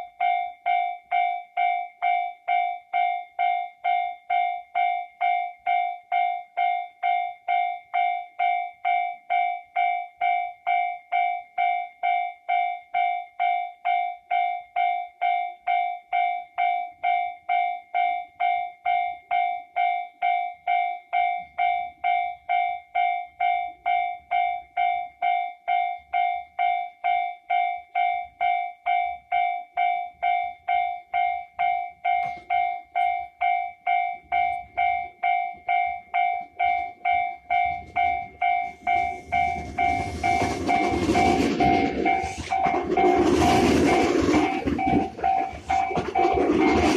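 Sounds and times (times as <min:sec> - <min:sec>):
level crossing bell ringing: 0:00.0 - 0:46.9
electric train rumble passing: 0:37.0 - 0:46.9.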